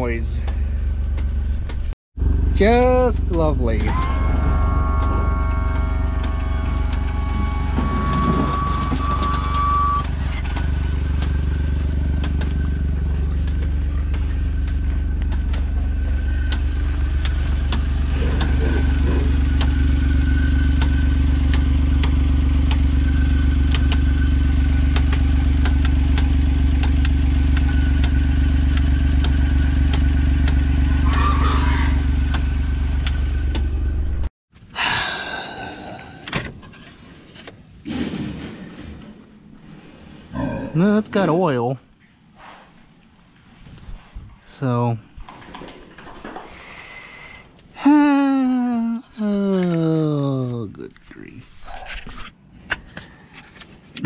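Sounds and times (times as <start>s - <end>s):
engine running with ticking: 0.0s - 34.3s.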